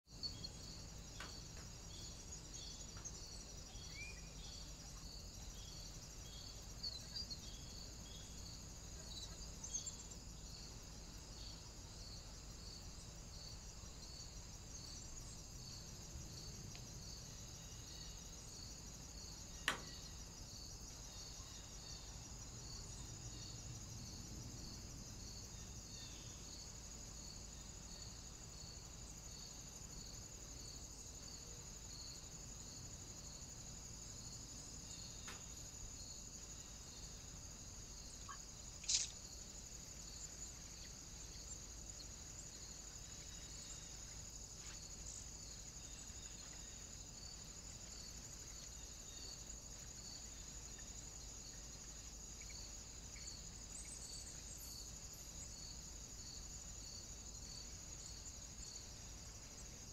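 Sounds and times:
insect chirring: 0.1s - 59.9s
sharp click: 38.8s - 39.2s.

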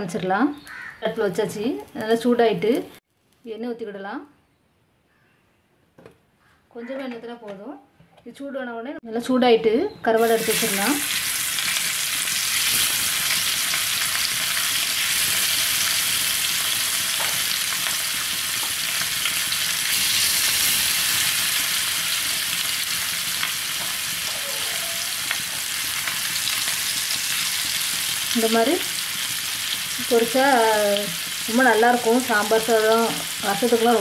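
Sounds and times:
fish sizzling in hot oil: 10.2s - 34.0s.

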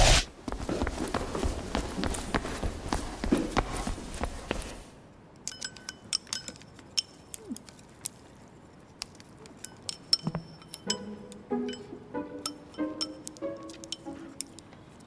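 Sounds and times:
hurried footsteps: 0.0s - 4.9s.

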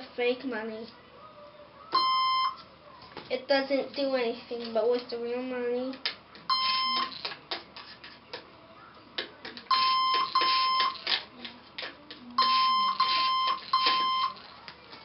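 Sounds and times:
electronic beeps: 2.0s - 2.6s, 6.5s - 7.2s, 9.7s - 11.0s, 12.4s - 14.4s.

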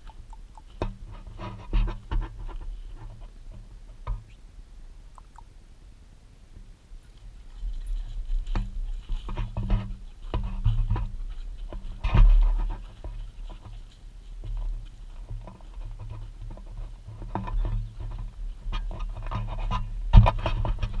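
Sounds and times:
low uneven rumble: 0.0s - 21.0s
steps on dry soil: 7.2s - 21.0s.

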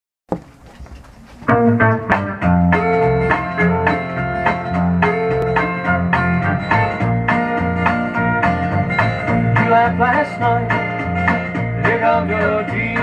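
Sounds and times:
record surface noise: 0.3s - 2.3s
country band instrumental: 0.3s - 13.0s.

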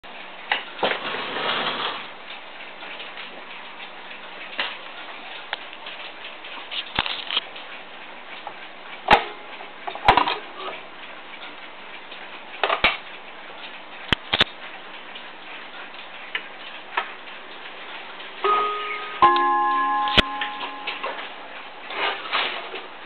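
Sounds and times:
clock ticking: 13.1s - 21.8s.

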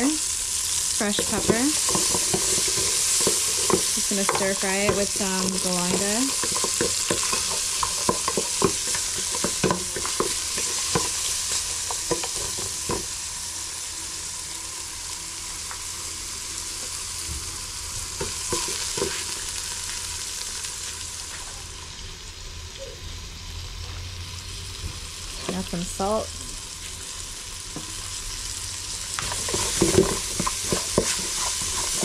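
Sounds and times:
food sizzling in a pot: 0.0s - 32.0s
wooden spoon scraping metal pot: 1.0s - 13.0s, 29.2s - 32.0s.

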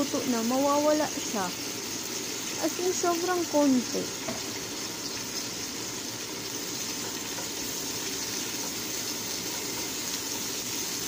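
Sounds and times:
vegetables sizzling in oil: 0.0s - 11.0s
spatula stirring in a pan: 4.2s - 11.0s.

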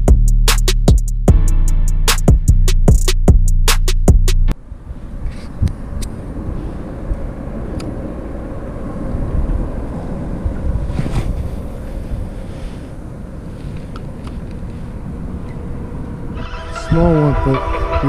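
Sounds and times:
music sting with heavy beat: 0.0s - 4.5s, 16.4s - 18.0s
low outdoor rumble: 3.2s - 18.0s.

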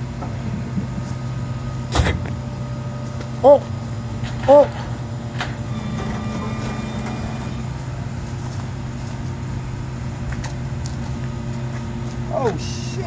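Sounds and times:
vehicle engine running: 0.0s - 13.0s.

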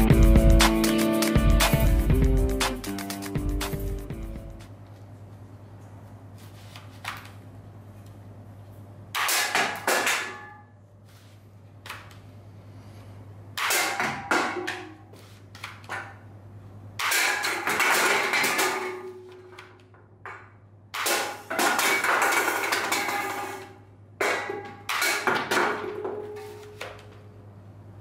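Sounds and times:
cans hit and clattering on table: 20.3s - 27.0s.

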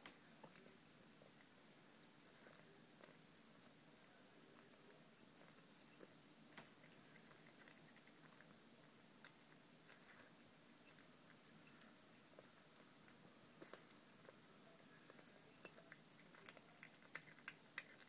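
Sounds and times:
cat chewing and licking: 0.0s - 18.0s.

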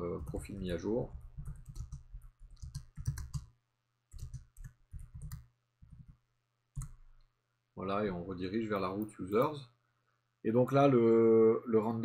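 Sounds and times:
keyboard typing clicks: 1.4s - 3.5s, 4.1s - 6.2s, 6.8s - 7.0s.

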